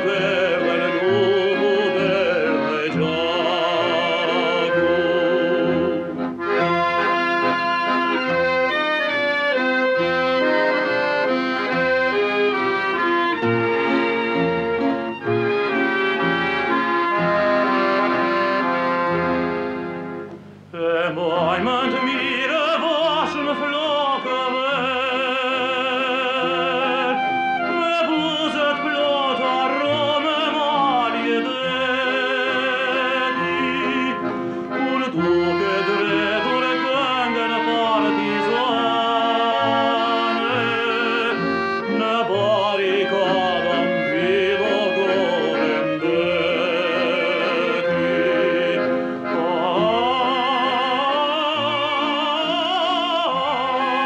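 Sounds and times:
man singing operatically: 0.0s - 9.6s, 20.7s - 54.0s
accordion: 0.0s - 54.0s.

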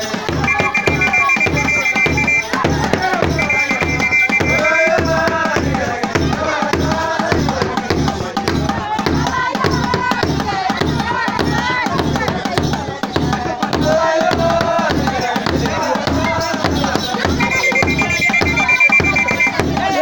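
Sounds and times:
group singing: 0.0s - 20.0s
hand drums beating rhythm: 0.0s - 20.0s
shrill whistle blast: 0.3s - 5.3s, 17.4s - 20.0s.

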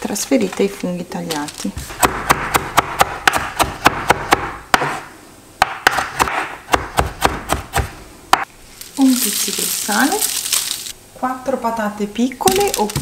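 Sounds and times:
knife chopping on wooden board: 1.8s - 8.5s.

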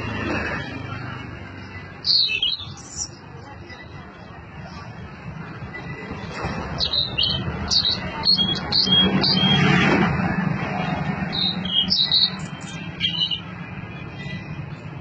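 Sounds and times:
background traffic: 0.0s - 15.0s
bird singing high sharp notes: 1.6s - 3.2s, 5.8s - 9.8s, 11.2s - 14.5s.

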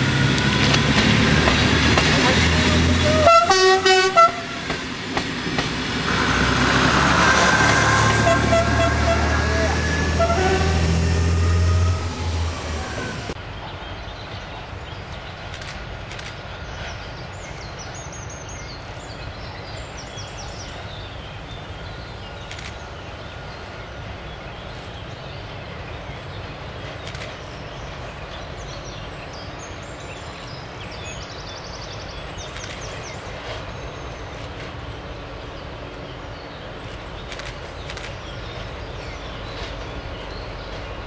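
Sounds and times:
distant train rumbling over bridge: 0.0s - 41.0s
small birds chirping: 13.7s - 41.0s.

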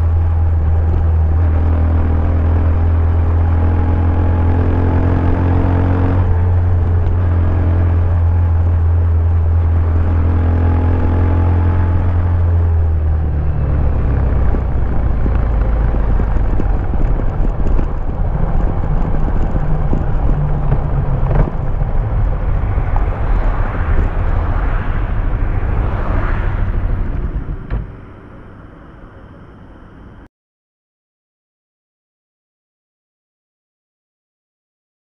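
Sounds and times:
motorcycle engine running rough: 0.0s - 26.1s
wind noise: 0.0s - 30.2s.

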